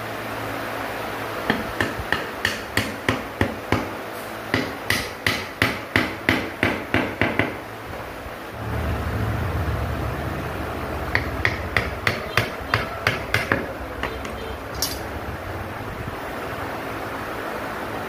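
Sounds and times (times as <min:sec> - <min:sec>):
steady low hum: 0:07.6 - 0:18.0
hammer blows on wood: 0:11.1 - 0:14.8.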